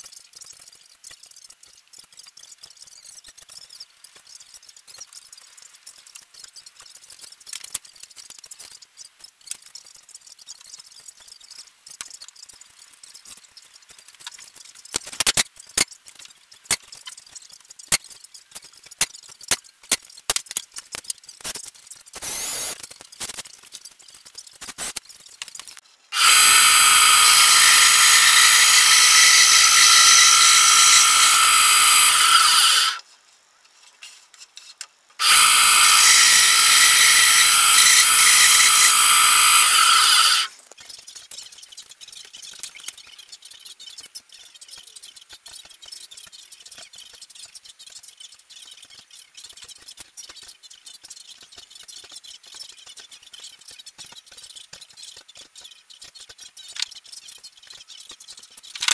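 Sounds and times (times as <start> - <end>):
sharp clicks and knocks: 0.0 - 32.8, 34.0 - 58.9
band saw cutting wood: 26.2 - 33.0, 35.2 - 40.5.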